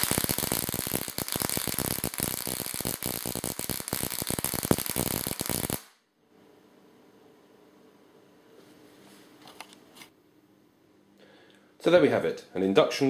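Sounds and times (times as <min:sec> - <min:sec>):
electric sparks crackling: 0:00.0 - 0:06.0.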